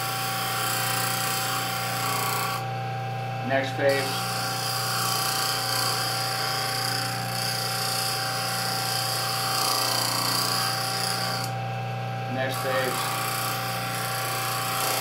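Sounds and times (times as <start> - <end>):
grinder motor hum: 0.0 - 15.0
steel grinding on wheel: 3.9 - 11.5.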